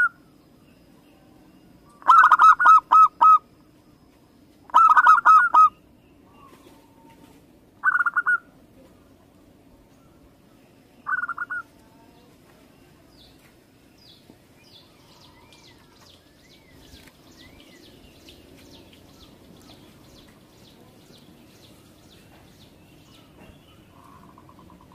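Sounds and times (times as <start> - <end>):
faint high chirping: 0.0 - 24.9
dove cooing: 1.9 - 3.5, 4.7 - 8.6, 11.0 - 11.8, 23.2 - 24.9.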